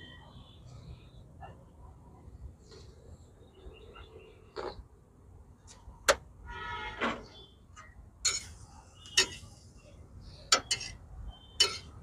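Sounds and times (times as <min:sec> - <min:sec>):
metal utensils knocking on steel griddle: 0:11.6 - 0:11.9.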